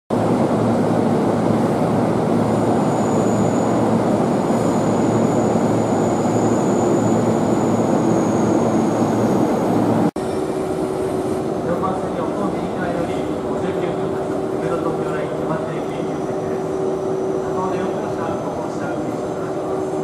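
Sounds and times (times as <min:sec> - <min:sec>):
electric train humming: 0:00.2 - 0:20.0
thin high whine: 0:02.4 - 0:11.4.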